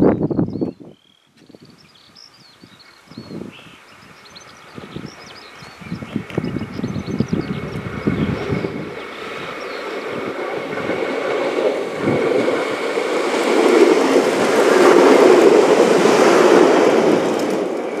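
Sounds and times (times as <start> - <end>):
diesel train engine passing: 4.1 - 18.0
train wheels on rails: 4.2 - 18.0.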